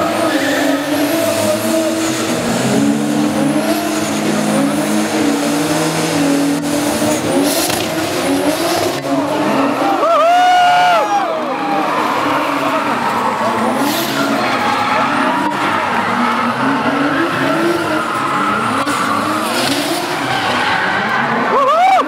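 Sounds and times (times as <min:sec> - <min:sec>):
car engines revving high: 0:00.0 - 0:22.0
loud announcer voice: 0:09.1 - 0:22.0.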